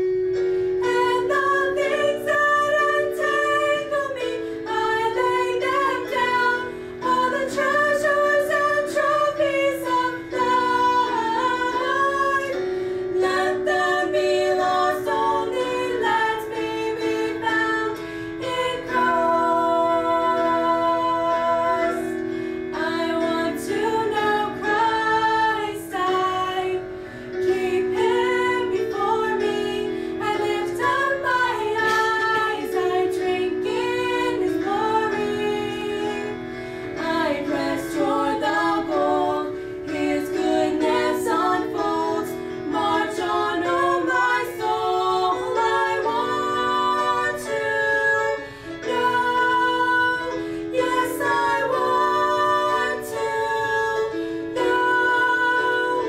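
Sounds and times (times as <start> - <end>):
women singing in harmony: 0.0 - 56.0
singers breathing: 12.6 - 13.2, 18.0 - 18.4, 22.2 - 22.7, 26.9 - 27.4, 36.4 - 37.0, 48.4 - 48.8, 50.4 - 50.7.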